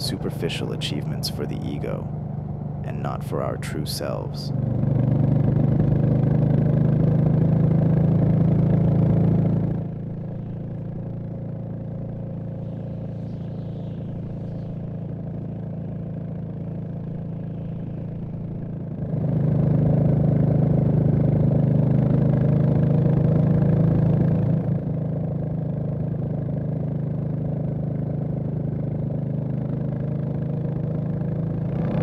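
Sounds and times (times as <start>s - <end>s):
motorcycle engine running: 0.0s - 32.0s.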